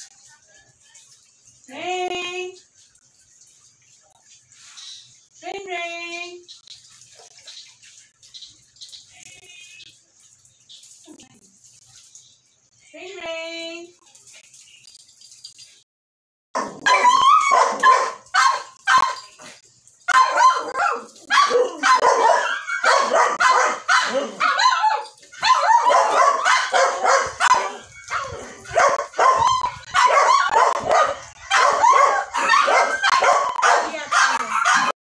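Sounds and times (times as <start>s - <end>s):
dog whining and yipping: 20.2s - 33.6s.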